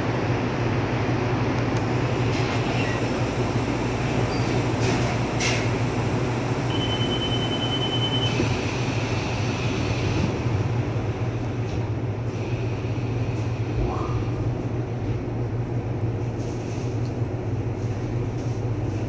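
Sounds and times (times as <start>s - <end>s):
train motors and wheels rumbling: 0.0s - 19.0s.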